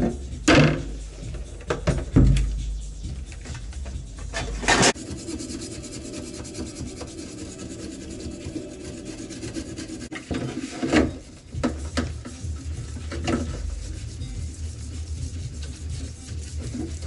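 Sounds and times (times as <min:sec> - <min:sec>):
brush scrubbing metal parts: 0:03.9 - 0:17.0.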